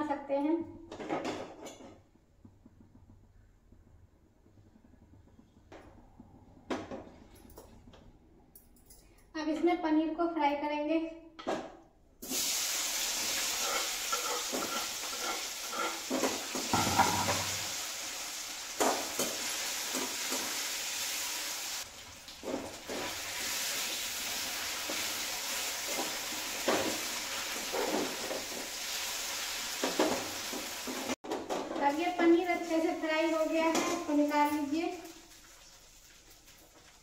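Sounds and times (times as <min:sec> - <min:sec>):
food sizzling in hot oil: 0:12.2 - 0:31.2, 0:32.5 - 0:37.0
spatula clinking and scraping pan: 0:13.3 - 0:17.8.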